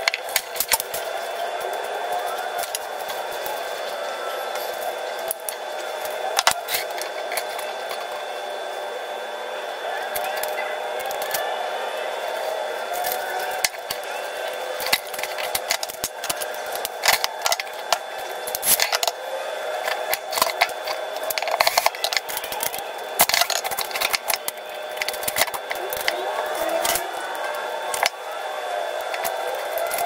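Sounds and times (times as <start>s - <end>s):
steady background hum: 0.0s - 30.0s
metal parts clinking and rattling: 14.8s - 19.1s, 19.8s - 27.0s.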